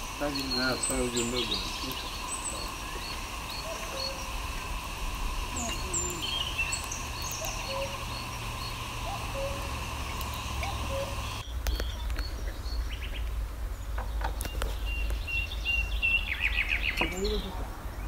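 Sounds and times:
steady low rumble: 0.0 - 14.0
birds chirping: 0.0 - 18.0.

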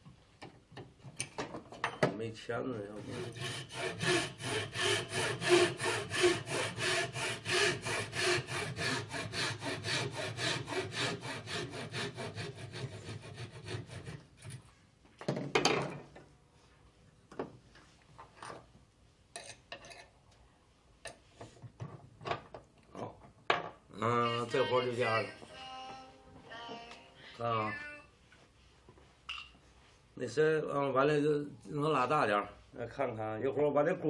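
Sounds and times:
loud saw scrape: 3.0 - 14.2
hand saw cutting wood: 3.0 - 14.6.

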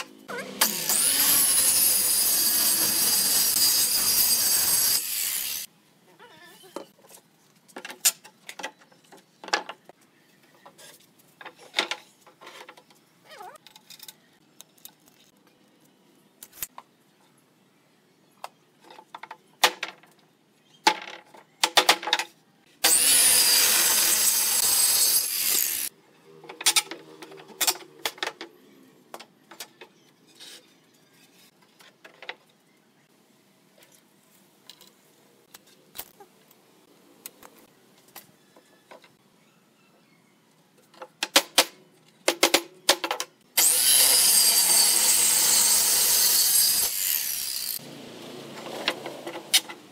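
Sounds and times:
circular saw cutting wood: 0.2 - 5.7, 22.8 - 25.9, 43.6 - 49.6.

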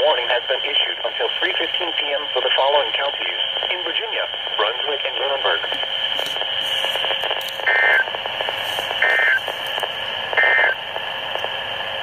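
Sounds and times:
radio static hiss: 0.0 - 12.0
two-tone digital chirps: 9.0 - 9.4.

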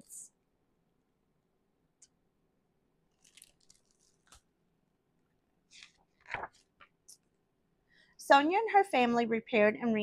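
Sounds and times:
book pages rustling: 3.1 - 4.5, 5.7 - 7.3.

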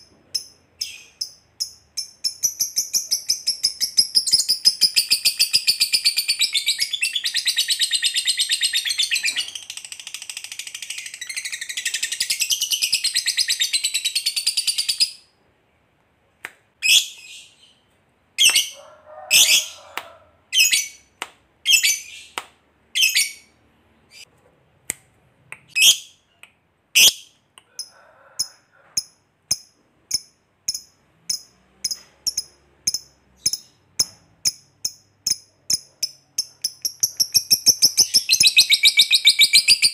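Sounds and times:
lovebird chattering trill: 29.0 - 39.9.

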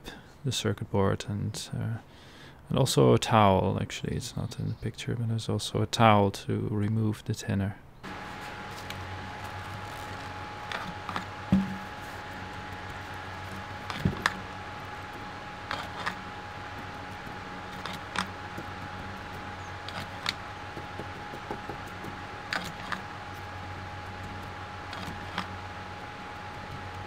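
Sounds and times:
desk fan humming: 8.0 - 27.0.

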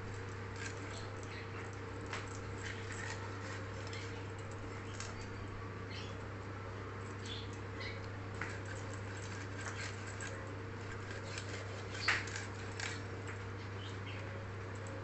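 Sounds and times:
steady low hum: 0.0 - 15.0
blade scraping and slicing fish: 8.4 - 13.0.

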